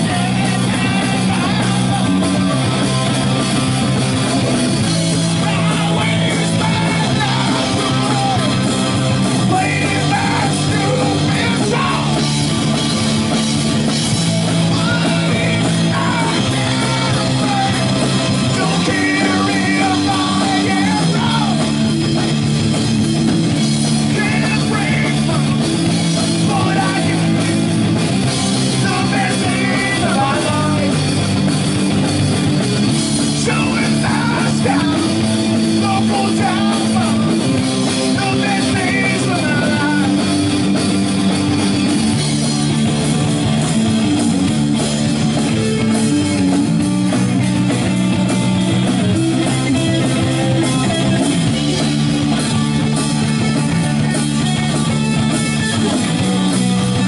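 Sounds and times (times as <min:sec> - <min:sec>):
shouted singing: 0:00.0 - 0:02.9, 0:05.4 - 0:08.8, 0:09.4 - 0:12.5, 0:14.7 - 0:21.8, 0:24.0 - 0:25.6, 0:26.2 - 0:27.6, 0:28.7 - 0:31.0, 0:33.4 - 0:37.4
distorted electric guitar: 0:00.0 - 0:57.0
drum kit: 0:00.0 - 0:57.0
electric bass: 0:00.0 - 0:57.0.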